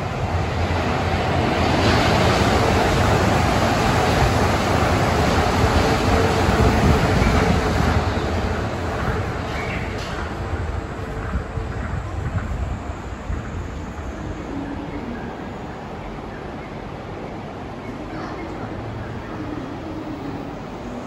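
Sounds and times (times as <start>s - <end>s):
monorail train running past: 0.0s - 21.0s.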